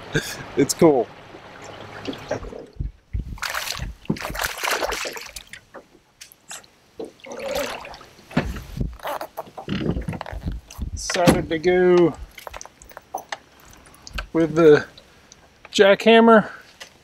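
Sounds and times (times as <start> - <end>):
fish splashing in water: 1.4 - 5.7, 6.6 - 8.3, 12.3 - 15.4.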